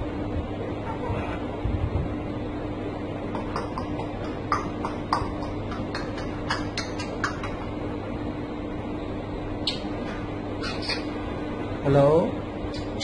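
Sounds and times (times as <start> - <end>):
steady low hum: 0.0 - 13.0
parrot clicking: 3.3 - 7.7.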